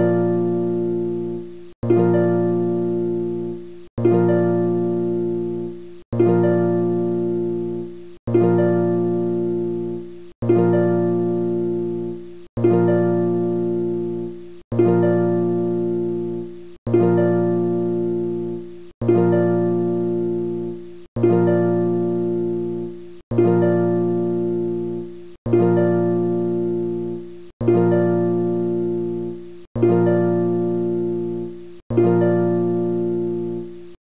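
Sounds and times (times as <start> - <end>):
plucked string chord loop: 0.0 - 33.9.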